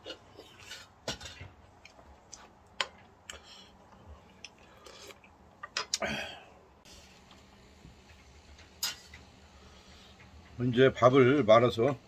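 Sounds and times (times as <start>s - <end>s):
light irregular eating clicks: 1.8s - 6.0s.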